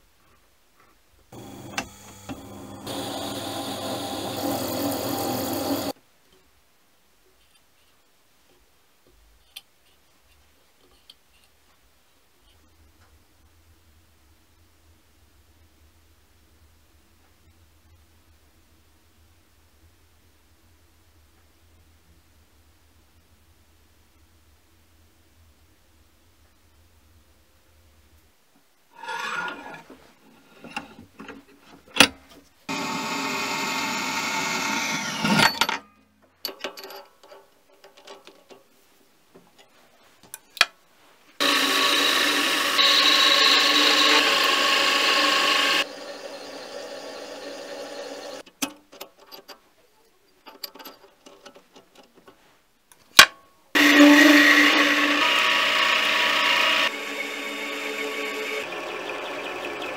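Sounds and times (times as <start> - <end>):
band saw cutting metal: 1.3 - 6.0, 32.7 - 35.6, 41.4 - 48.4, 53.8 - 59.9
lathe motor whining: 1.4 - 6.0, 32.7 - 35.4, 41.4 - 48.4, 53.8 - 59.9
clicks and knocks of handling: 35.6 - 38.7, 48.4 - 49.6, 50.4 - 53.4.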